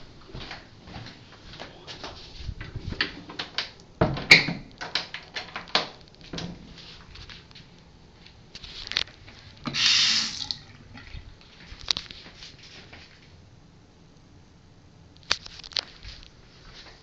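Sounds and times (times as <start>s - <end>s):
faucet water hissing into basin: 9.7s - 10.8s.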